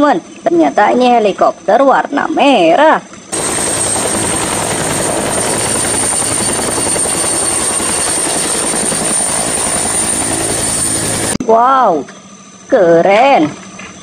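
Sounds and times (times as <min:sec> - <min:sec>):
helicopter rotor blades beating: 0:03.3 - 0:11.4
helicopter turbine whine: 0:03.3 - 0:11.4.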